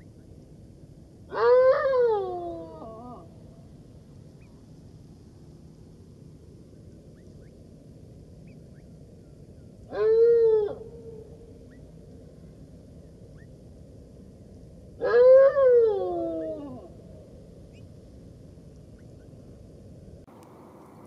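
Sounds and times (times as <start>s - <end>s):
jackal howl: 1.3s - 3.4s, 9.9s - 11.3s, 15.0s - 17.3s.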